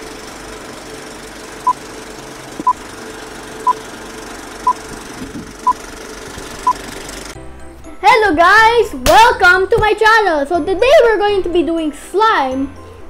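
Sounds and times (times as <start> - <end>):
film projector whirring: 0.0 - 7.4.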